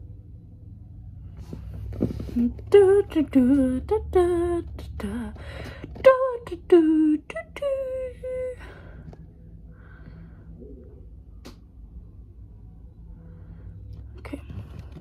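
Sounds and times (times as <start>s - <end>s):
girl singing without words: 2.4s - 8.7s.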